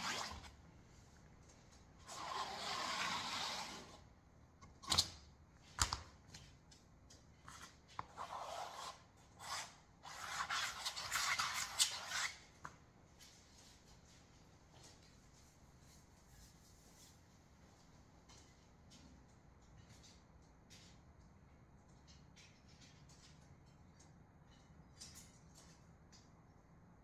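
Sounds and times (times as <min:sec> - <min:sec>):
ruler scraping across canvas: 0:00.0 - 0:00.6, 0:02.0 - 0:04.0, 0:07.5 - 0:12.4.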